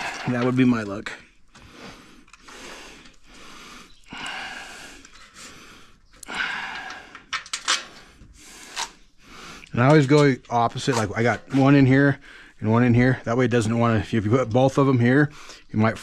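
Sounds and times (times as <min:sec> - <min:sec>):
man breathing heavily: 0:00.0 - 0:00.3, 0:01.2 - 0:09.8, 0:11.7 - 0:12.6.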